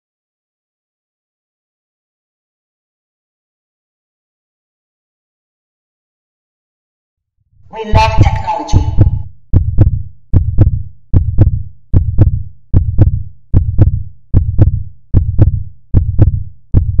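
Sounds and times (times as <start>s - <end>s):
heartbeat thumps: 7.9s - 17.0s.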